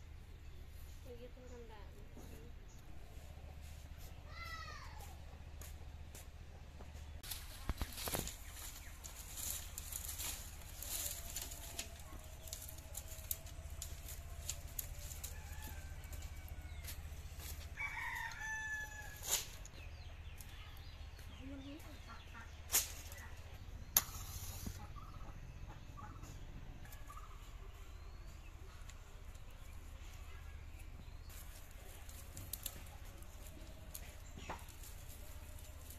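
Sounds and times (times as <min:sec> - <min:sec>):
firewood sticks clattering: 0:07.2 - 0:18.4, 0:31.3 - 0:35.9
rooster crowing: 0:14.7 - 0:19.3.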